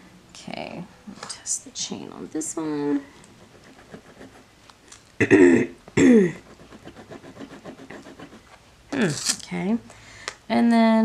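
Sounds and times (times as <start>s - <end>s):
woman clearing her throat: 5.2s - 6.4s
chain scratching on stone: 6.4s - 9.4s.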